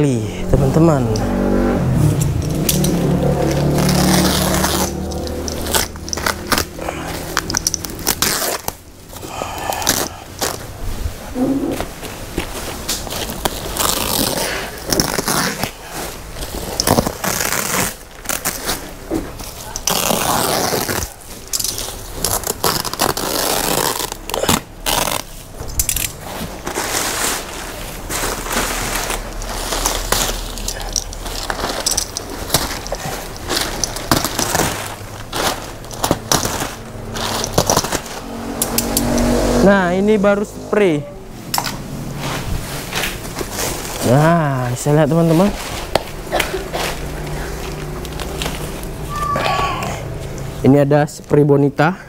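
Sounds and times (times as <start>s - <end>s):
plastic sack rustling and crinkling: 2.0s - 38.6s, 41.3s - 49.2s
sharp ripping of plastic: 2.2s - 10.8s, 12.8s - 39.5s.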